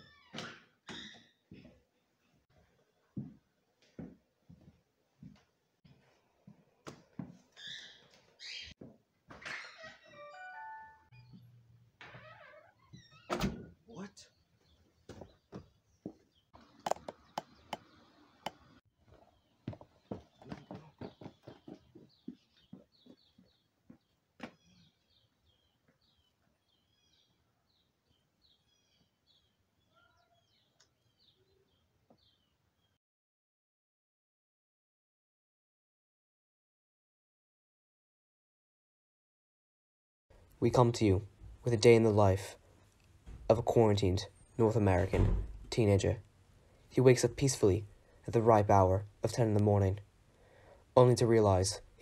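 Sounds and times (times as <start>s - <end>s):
footsteps on wooden floor: 3.2s - 7.5s, 15.0s - 16.3s, 19.1s - 24.6s
songbird chirping: 9.5s - 33.0s.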